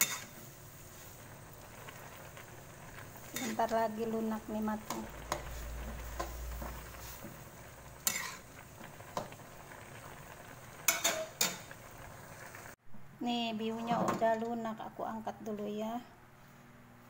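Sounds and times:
metal spatula scraping a wok: 0.0 - 1.0, 3.2 - 3.8, 4.9 - 7.4, 8.0 - 8.5, 10.9 - 11.7.

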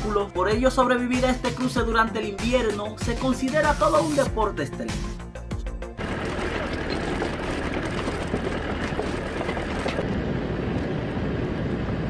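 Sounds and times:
high hiss: 3.8 - 4.3
wooden planks knocking and clattering: 6.0 - 10.0
vehicle engine and tyre rumble: 6.0 - 12.0.

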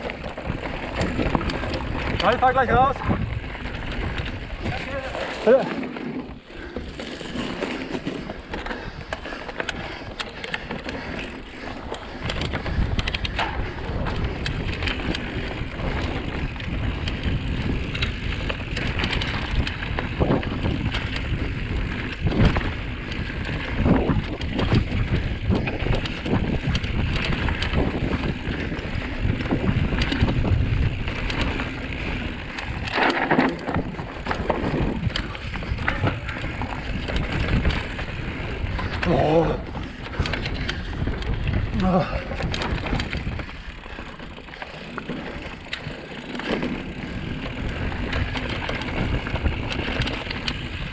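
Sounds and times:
wind buffeting microphone: 0.0 - 5.7, 6.3 - 50.9
bike knocking and rattling: 0.0 - 50.9
bike tyre rumble on dirt: 0.0 - 50.9.

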